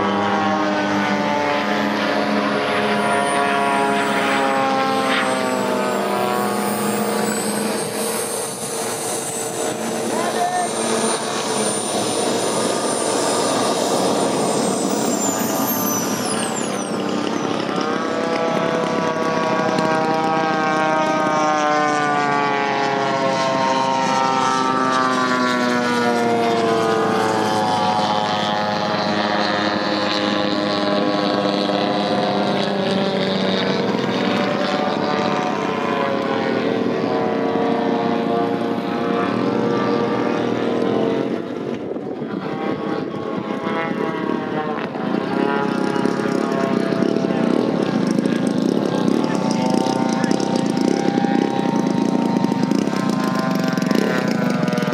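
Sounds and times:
high whine falling in pitch: 0.0s - 54.9s
model aircraft engine drone: 0.0s - 54.9s
steady rushing noise: 2.0s - 19.4s.

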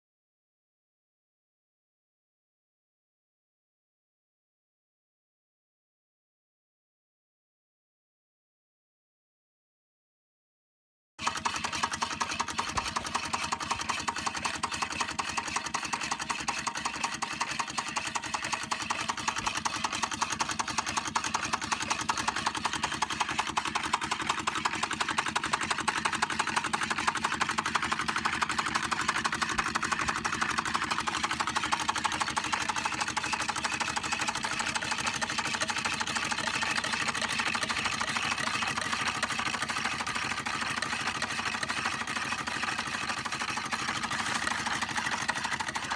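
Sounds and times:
hot-air engine mechanical clatter: 11.2s - 45.9s.

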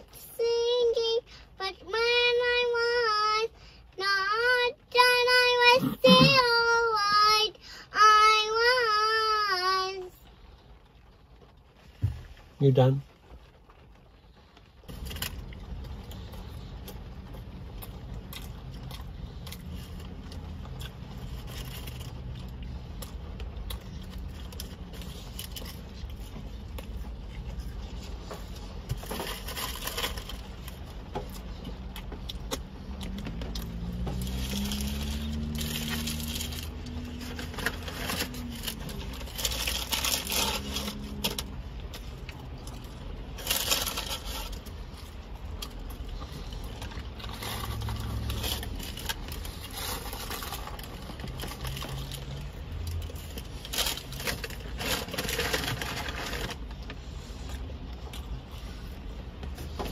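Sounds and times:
wrapper crinkling: 28.9s - 31.6s, 32.8s - 56.8s.

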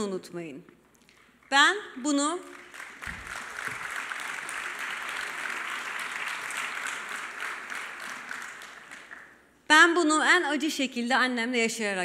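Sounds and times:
audience applauding: 2.5s - 9.4s.

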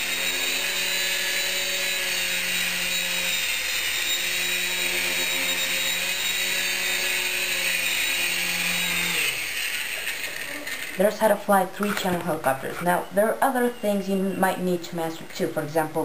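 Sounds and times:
toy helicopter motor whine: 0.0s - 12.8s.

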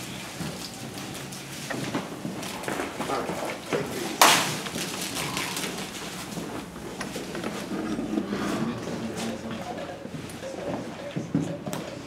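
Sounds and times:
plastic sheeting crackling: 0.0s - 7.7s.

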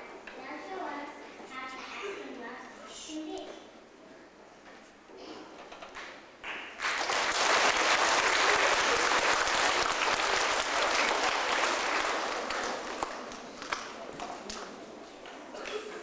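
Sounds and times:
audience applauding: 6.4s - 14.6s.

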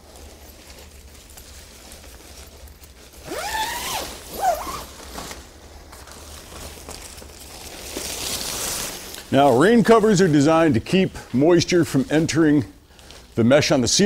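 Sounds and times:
nylon tent fabric rustling: 0.0s - 10.9s.

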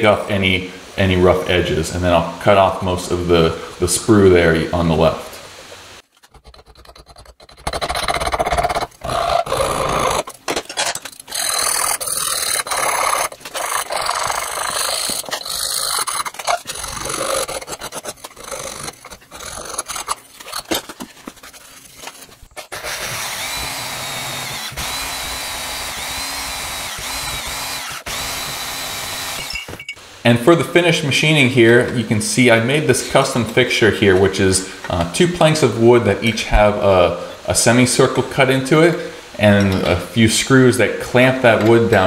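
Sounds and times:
hand file rasping on metal: 6.2s - 10.3s, 11.3s - 25.5s
small power tool whine: 22.5s - 30.0s.

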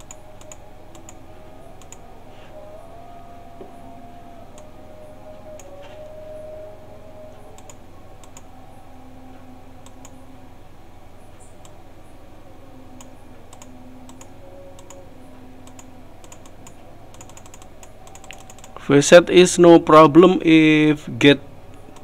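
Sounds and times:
computer mouse clicking: 0.0s - 1.2s, 1.8s - 2.0s, 7.6s - 8.4s, 13.0s - 15.0s, 15.6s - 18.8s
low background hum: 0.0s - 22.0s.

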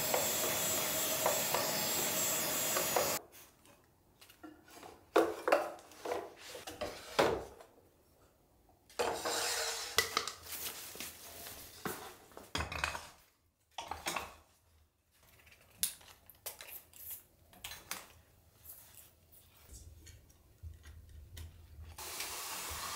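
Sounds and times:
rustling shuffle: 10.4s - 12.5s.

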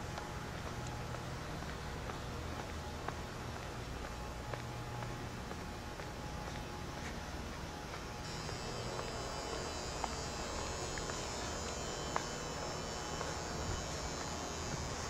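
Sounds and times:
electrical hum: 0.0s - 15.0s
thin high whine: 8.1s - 15.0s.

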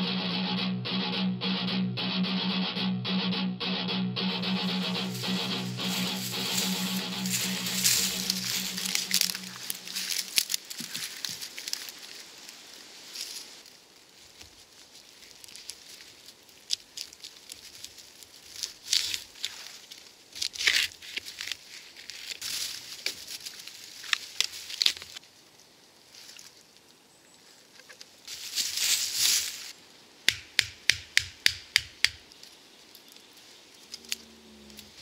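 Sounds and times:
bark tearing and scraping: 5.2s - 12.2s, 15.0s - 25.2s.

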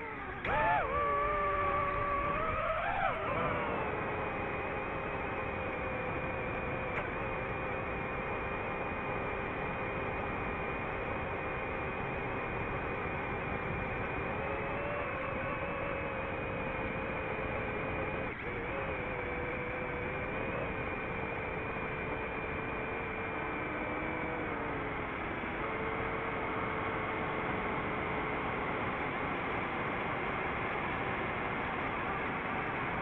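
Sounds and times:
drone motors whirring: 0.0s - 33.0s.

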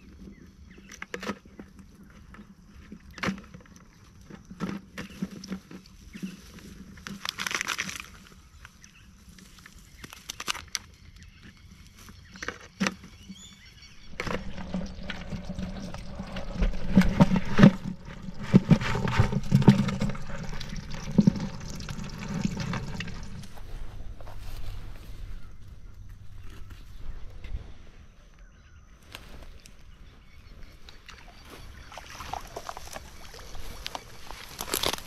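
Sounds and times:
crayfish clattering in plastic bucket: 0.1s - 8.6s, 12.1s - 24.1s, 31.8s - 35.0s
water dripping: 14.0s - 24.4s.

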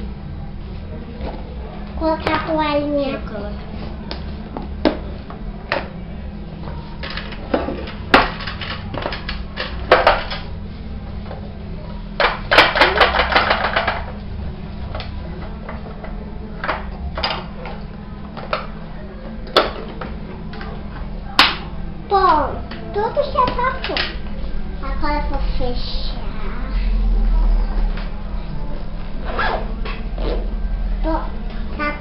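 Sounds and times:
low hum: 23.6s - 32.0s.

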